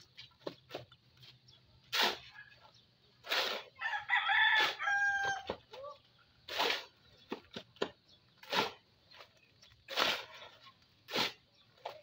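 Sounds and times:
hoe scraping wet concrete: 0:00.0 - 0:05.4, 0:06.4 - 0:12.0
rooster crowing: 0:03.8 - 0:05.5.

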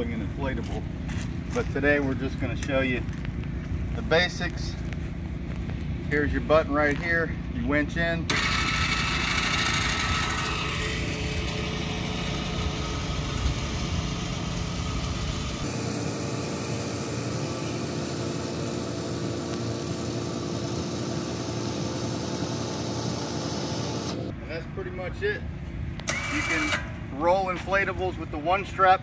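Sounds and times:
electric winch running: 0:08.3 - 0:24.3, 0:26.1 - 0:26.9.

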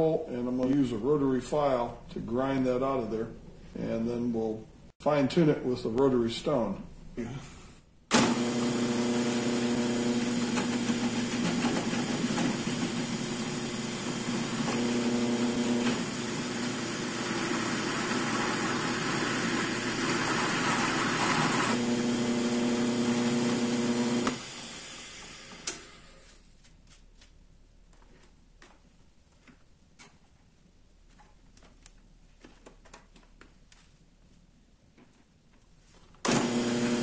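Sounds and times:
drill press motor hum: 0:08.1 - 0:26.2, 0:36.2 - 0:37.0
click: 0:25.6 - 0:25.8.

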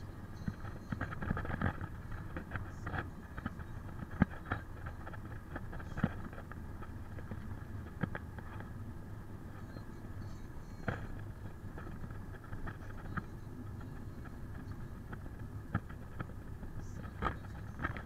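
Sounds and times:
car road and engine rumble: 0:00.0 - 0:18.0
small clicks and rattles: 0:00.3 - 0:08.8, 0:09.5 - 0:18.0.

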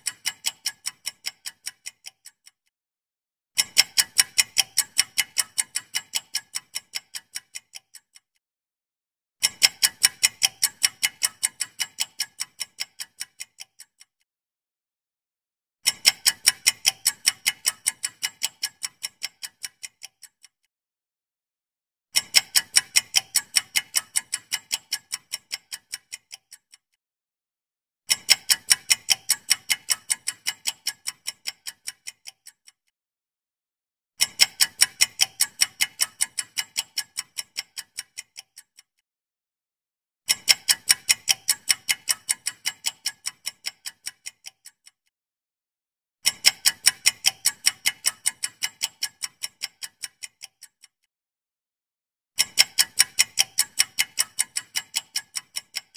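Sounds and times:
clock ticking: 0:00.0 - 0:02.6, 0:03.6 - 0:08.3, 0:09.4 - 0:14.1, 0:15.8 - 0:20.6, 0:22.2 - 0:26.8, 0:28.1 - 0:32.8, 0:34.2 - 0:38.9, 0:40.3 - 0:45.0, 0:46.2 - 0:51.0, 0:52.4 - 0:55.9.

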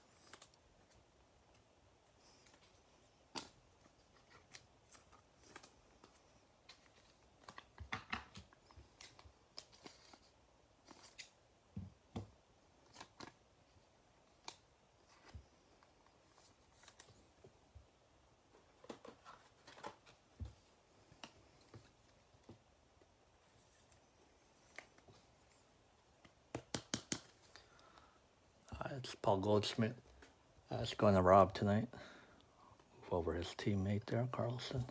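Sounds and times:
cards rustling and clicking: 0:00.0 - 0:11.4, 0:12.1 - 0:17.6, 0:18.5 - 0:22.7, 0:23.6 - 0:25.4, 0:26.2 - 0:27.8.

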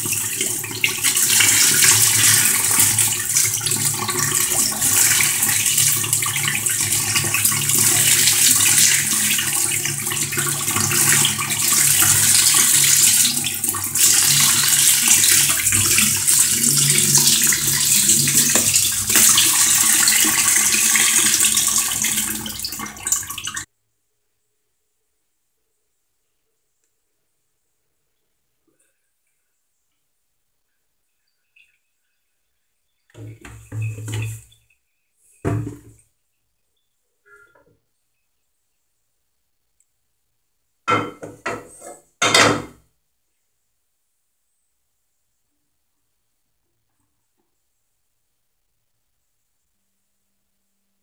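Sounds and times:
tap water running: 0:00.0 - 0:23.7, 0:33.1 - 0:34.8, 0:35.4 - 0:36.1, 0:40.9 - 0:42.8.

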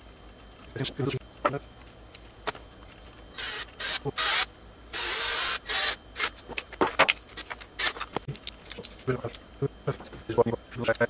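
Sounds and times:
cordless drill driving screws: 0:03.4 - 0:06.3
clicks and knocks of handled parts: 0:06.4 - 0:09.4.

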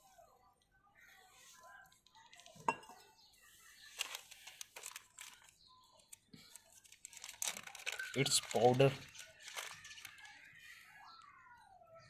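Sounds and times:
paper packet crinkling: 0:03.8 - 0:10.5.

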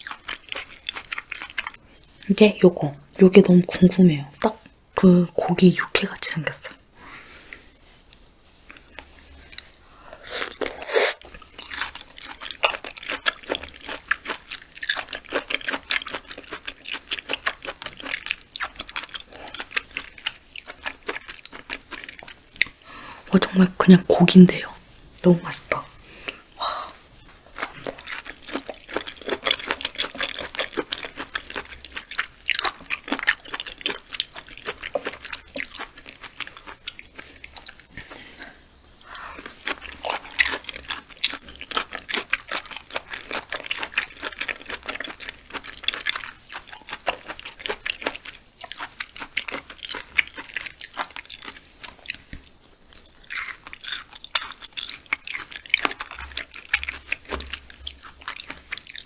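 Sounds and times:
chewing mouth clicks: 0:08.1 - 0:22.8, 0:27.5 - 0:38.2, 0:39.4 - 0:59.0.

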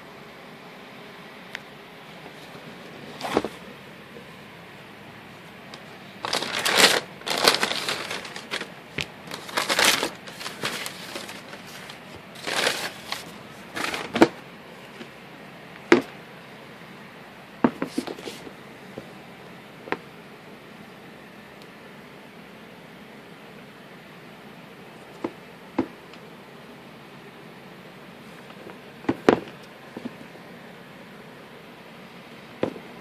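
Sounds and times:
tissue paper rustling: 0:06.2 - 0:14.4.

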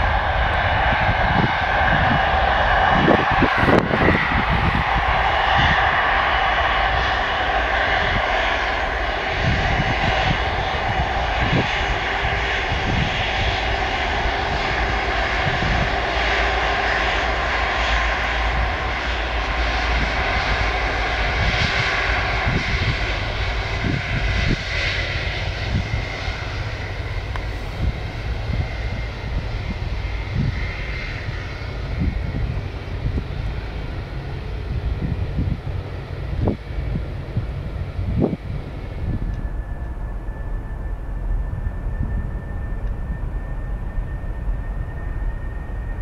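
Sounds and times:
jet engines whining at taxi: 0:00.0 - 0:46.0.

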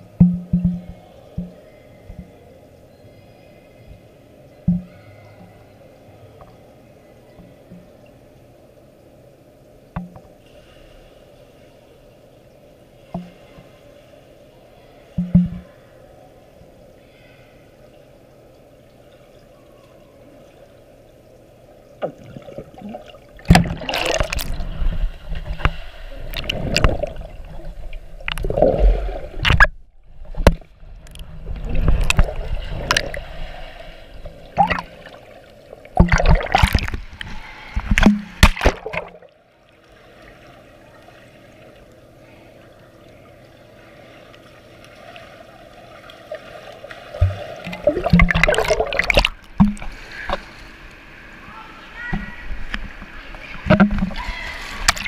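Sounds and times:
steady low underwater hum: 0:00.0 - 0:55.0
rushing water and bubbles: 0:18.6 - 0:55.0.

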